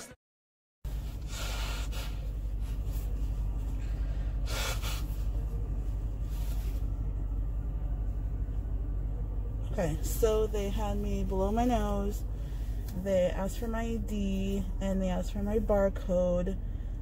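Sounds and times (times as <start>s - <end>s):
car engine idling: 0.9s - 17.0s
person blowing nose: 1.0s - 2.7s, 4.4s - 5.3s.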